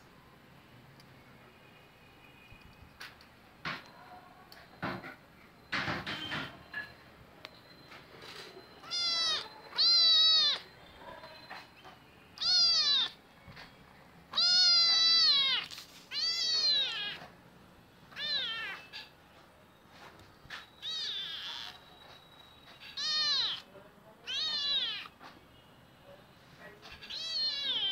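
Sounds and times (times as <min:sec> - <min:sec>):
kitten meowing: 0:08.8 - 0:10.8, 0:12.4 - 0:13.2, 0:14.3 - 0:17.3, 0:18.1 - 0:19.1, 0:20.8 - 0:21.9, 0:22.8 - 0:25.2, 0:27.0 - 0:27.9.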